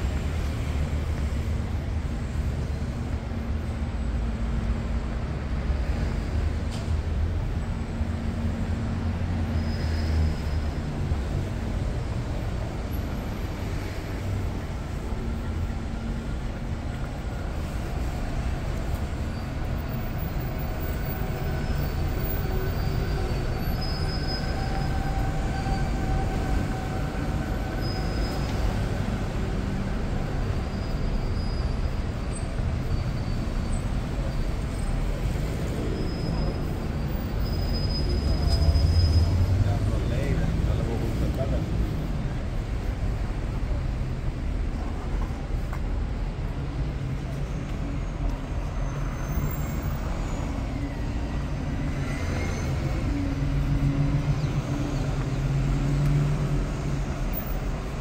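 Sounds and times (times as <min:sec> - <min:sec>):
vehicle rumble: 0:00.0 - 0:58.0.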